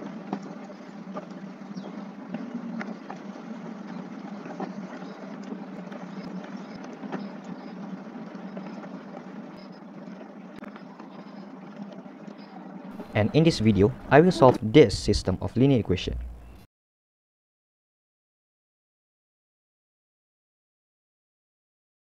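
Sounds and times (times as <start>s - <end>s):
low room hum: 0.0s - 16.7s.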